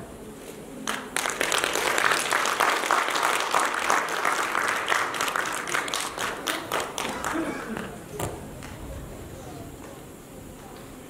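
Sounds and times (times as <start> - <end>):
audience applauding: 0.8 - 8.8.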